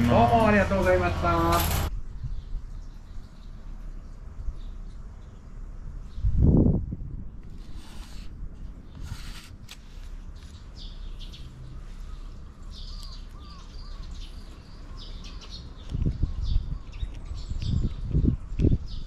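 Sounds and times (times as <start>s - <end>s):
steady low rumble: 0.0s - 9.0s
small birds chirping: 2.0s - 19.0s.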